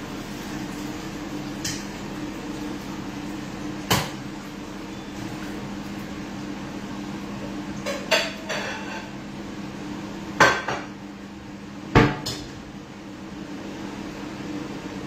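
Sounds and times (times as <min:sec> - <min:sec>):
metal pots and utensils clanking: 0:07.8 - 0:09.2.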